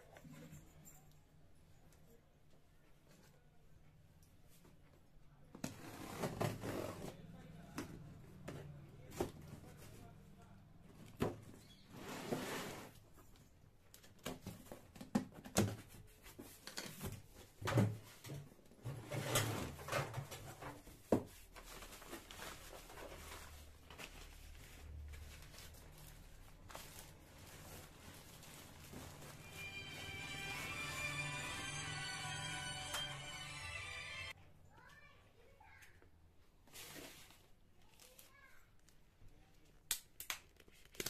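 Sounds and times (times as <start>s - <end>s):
paper and plastic rustling: 12.8s - 31.4s, 36.6s - 39.0s.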